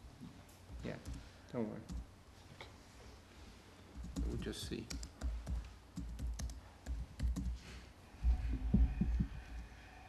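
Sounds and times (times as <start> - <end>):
laptop keyboard typing: 0.8 - 1.3, 1.9 - 2.1, 4.0 - 7.6.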